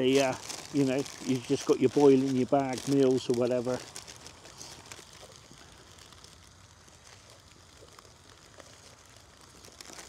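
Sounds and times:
low steady hiss: 0:00.0 - 0:10.0.

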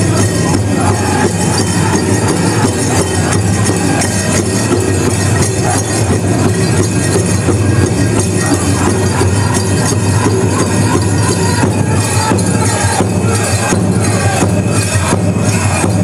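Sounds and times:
drum group singing: 0:00.0 - 0:16.0
steady drumbeat: 0:00.0 - 0:16.0.

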